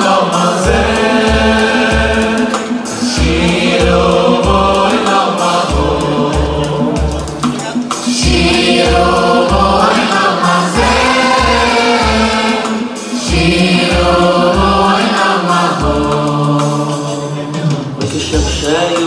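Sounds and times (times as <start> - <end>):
keyboards: 0.0 - 19.0
male choir singing: 0.0 - 19.0
bass beat: 0.6 - 5.0, 5.7 - 10.0, 10.8 - 12.7, 13.3 - 15.0.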